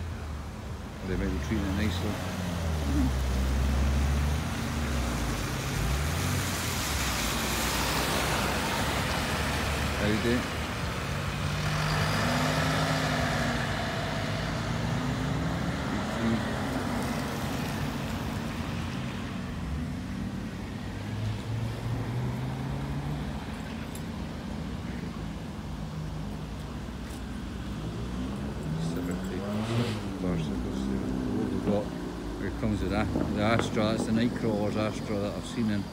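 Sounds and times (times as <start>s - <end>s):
traffic drone: 0.0s - 35.9s
tyre hiss on wet road: 1.6s - 19.9s, 29.4s - 31.1s
car engine driving away: 1.8s - 23.8s, 26.8s - 35.1s.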